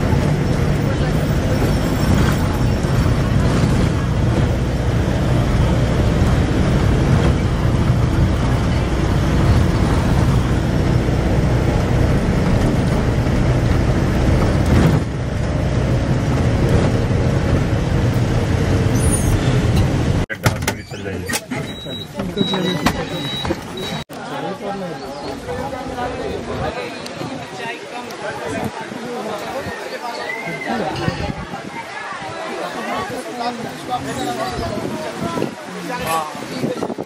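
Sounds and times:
vehicle engine drone: 0.0s - 24.0s
road rushing noise: 0.0s - 37.0s.

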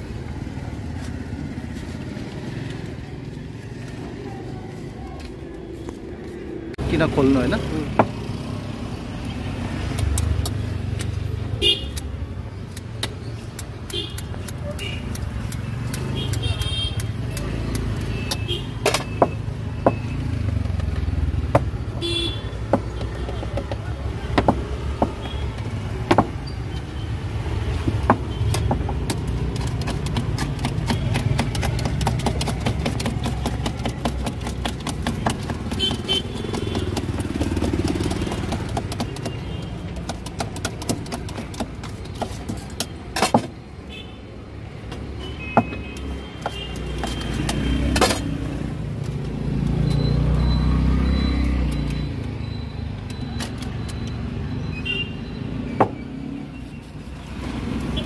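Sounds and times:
motorcycles: 0.0s - 43.4s, 46.5s - 58.0s
street traffic: 0.0s - 58.0s
knife chopping on a board: 22.6s - 25.4s, 26.0s - 26.4s, 27.8s - 43.6s
motor vehicle passing: 27.2s - 39.0s, 47.0s - 52.0s.

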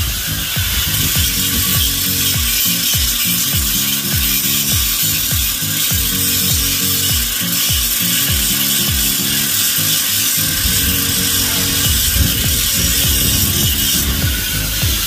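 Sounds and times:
angle grinder grinding steel: 0.0s - 15.0s
background music with bass beat: 0.0s - 15.0s.

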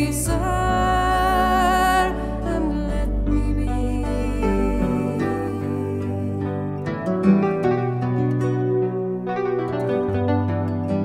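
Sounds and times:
slow instrumental music: 0.0s - 11.0s.

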